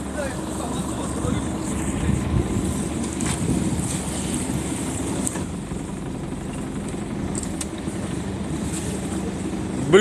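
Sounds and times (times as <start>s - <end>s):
motorboat engine rumble: 0.0s - 10.0s.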